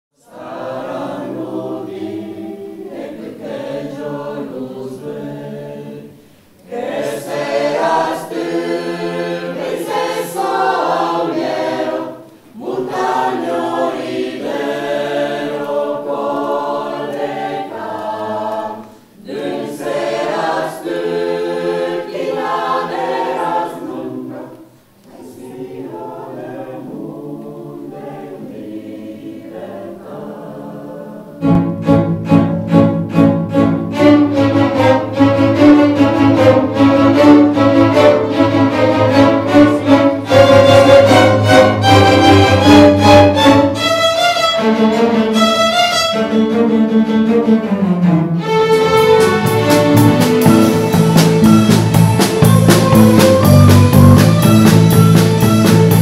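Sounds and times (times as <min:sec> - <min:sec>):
choir singing: 0:00.2 - 0:56.0.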